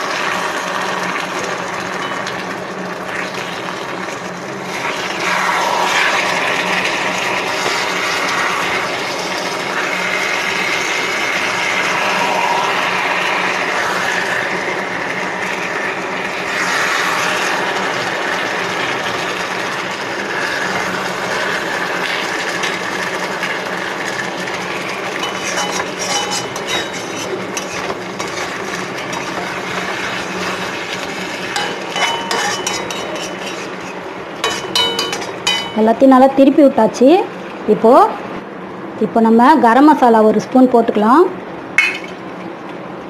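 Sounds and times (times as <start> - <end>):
chicken sizzling in a pan: 0.0 - 35.8
spatula scraping and clinking pan: 25.2 - 30.0, 31.5 - 35.9.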